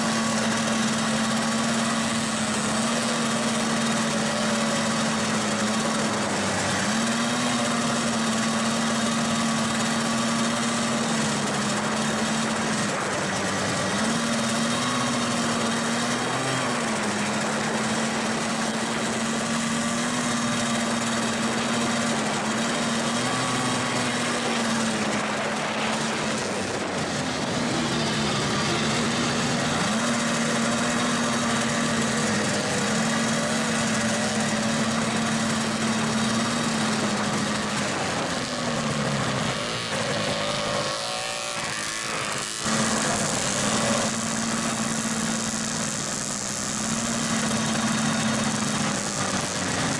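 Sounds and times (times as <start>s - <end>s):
constant rushing noise: 0.0s - 49.9s
snowmobile engine running: 0.0s - 49.9s.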